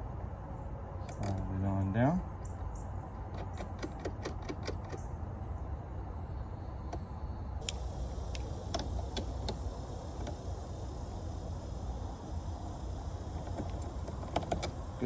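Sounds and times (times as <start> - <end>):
sharp metallic clicks: 3.2 - 5.1, 7.6 - 10.4, 13.3 - 15.0
steady low rumble: 5.0 - 15.0.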